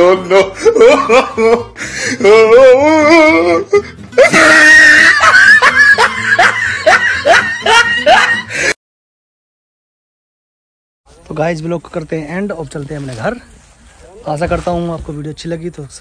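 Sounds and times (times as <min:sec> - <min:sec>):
person singing with vibrato: 0:00.0 - 0:03.9
music: 0:00.0 - 0:08.8.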